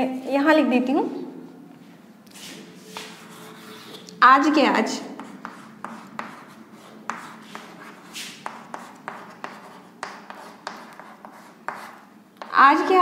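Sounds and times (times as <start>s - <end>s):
chalk scratching stroke: 2.3s - 4.1s, 5.2s - 12.5s
chalk tapping and scraping: 2.3s - 4.2s, 5.1s - 13.0s.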